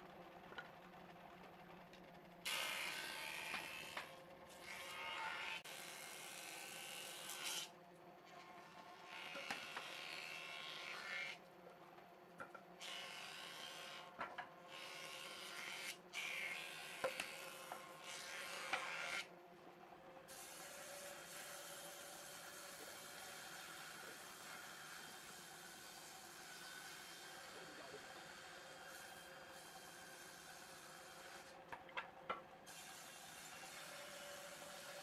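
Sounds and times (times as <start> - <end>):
planer cutting wood: 2.5 - 7.7, 9.0 - 11.4, 14.8 - 19.3.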